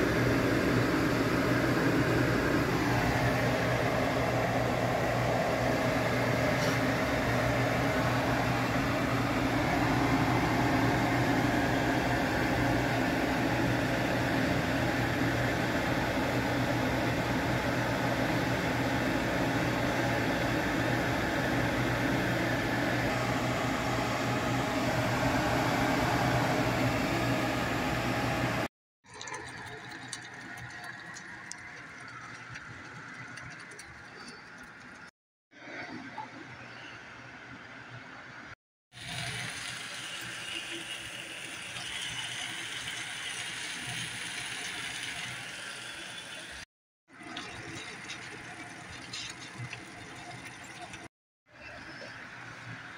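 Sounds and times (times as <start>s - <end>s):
extractor fan whirring hum: 0.0s - 28.7s
sauce bubbling in a saucepan: 29.0s - 35.1s, 39.0s - 51.1s.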